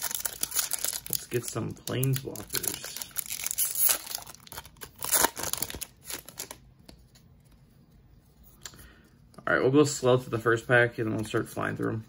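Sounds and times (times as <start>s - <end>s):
foil wrapper crinkling and tearing: 0.0s - 6.6s.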